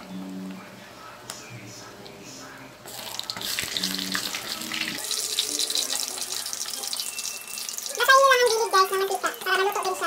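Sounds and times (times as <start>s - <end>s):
food deep-frying in oil: 2.9s - 10.0s.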